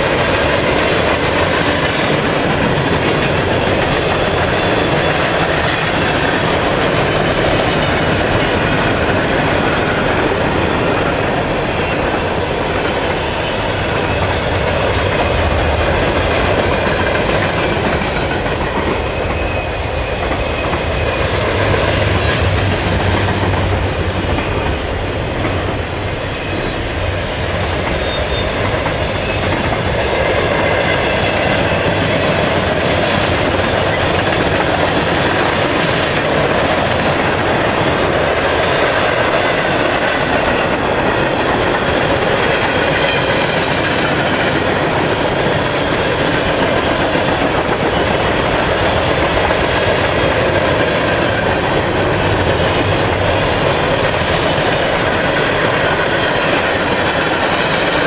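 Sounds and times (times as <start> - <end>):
freight train wheels rumbling: 0.0 - 58.0
high wheel squeal: 28.0 - 29.4.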